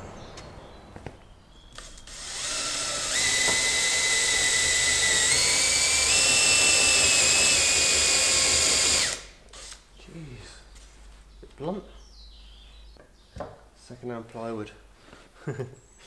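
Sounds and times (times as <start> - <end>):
power drill whining: 1.7 - 9.8.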